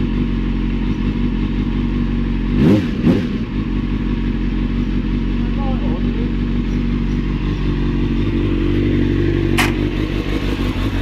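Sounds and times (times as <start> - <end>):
motorcycle engine idling: 0.0 - 11.0
sharp click: 9.5 - 9.9.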